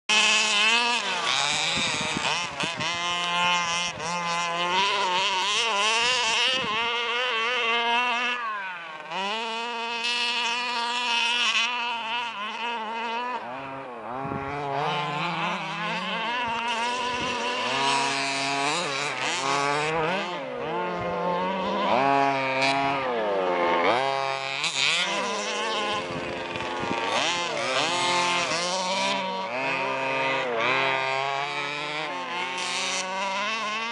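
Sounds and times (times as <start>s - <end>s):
two-stroke engine revving: 0.0s - 33.9s.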